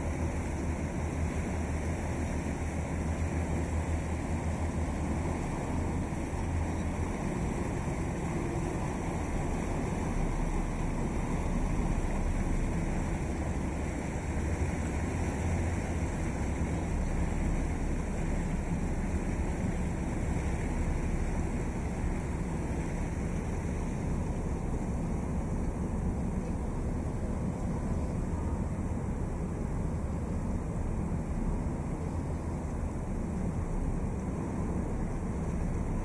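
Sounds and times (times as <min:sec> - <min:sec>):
boat engine rumble: 0:00.0 - 0:36.0
water rushing against hull: 0:00.0 - 0:36.0.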